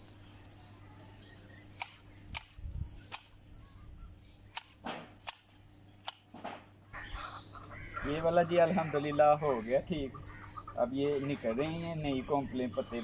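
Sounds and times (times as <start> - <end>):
hedge shears snipping: 1.7 - 3.4, 4.3 - 6.7.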